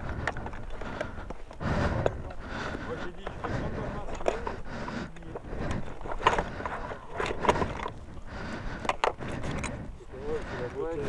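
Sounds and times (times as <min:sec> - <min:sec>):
plastic and metal parts clicking: 0:05.2 - 0:08.0, 0:08.8 - 0:09.8.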